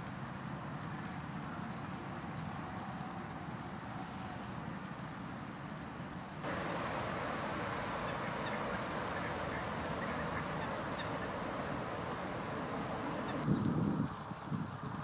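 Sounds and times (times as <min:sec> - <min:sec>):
quiet outdoor ambience: 0:00.0 - 0:15.0
waterfowl calling on a pond: 0:06.5 - 0:13.5.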